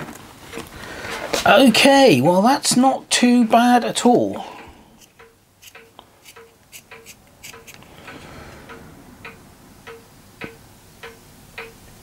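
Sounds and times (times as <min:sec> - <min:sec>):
rustle of hand tools: 0:04.4 - 0:08.7
light clicks of hand tools: 0:05.0 - 0:08.3
clock ticking: 0:05.0 - 0:12.0.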